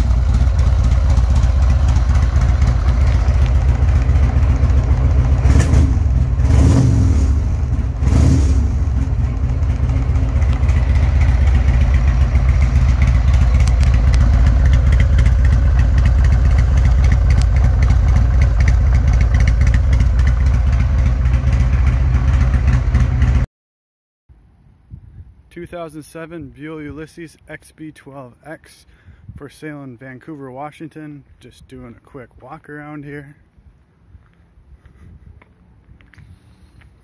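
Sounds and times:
motorcycle engine idling: 0.0 - 23.4.

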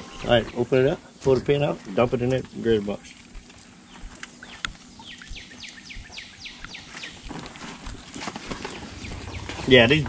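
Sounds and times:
songbird whistled notes: 4.4 - 7.3, 8.6 - 10.0.

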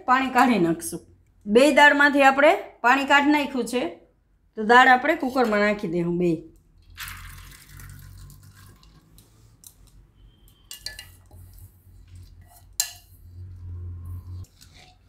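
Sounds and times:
wet lentils rushing into pot: 6.9 - 9.2.

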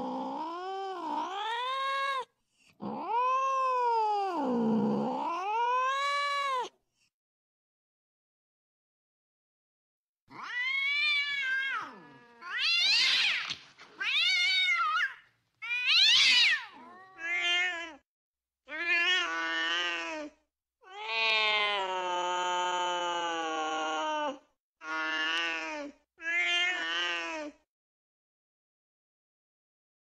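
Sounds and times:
cats yowling: 0.0 - 6.7, 10.3 - 18.0.

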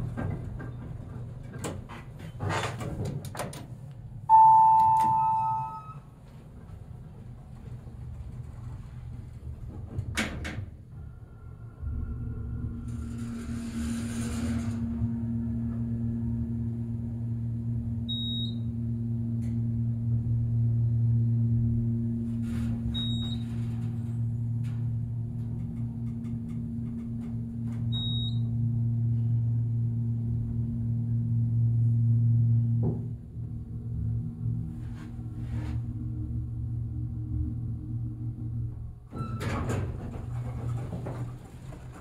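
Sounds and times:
elevator pump motor humming: 3.7 - 10.0, 10.9 - 42.0
short high beeps: 4.3 - 6.0.

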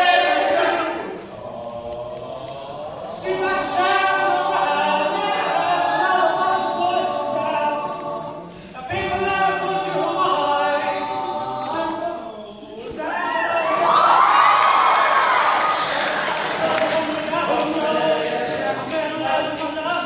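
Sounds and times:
male group singing in harmony: 0.0 - 14.8, 15.7 - 20.0.

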